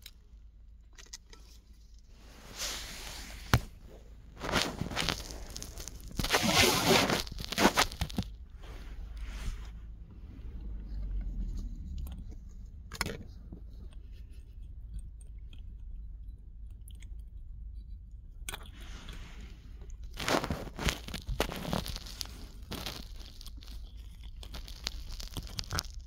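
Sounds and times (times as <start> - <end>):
dog chewing and licking: 20.2 - 25.9.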